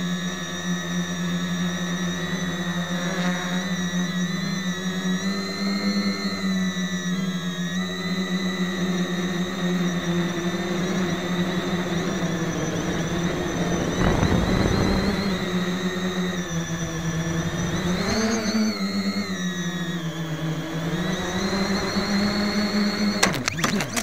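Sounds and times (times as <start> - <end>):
quadcopter motors whining: 0.0 - 24.0.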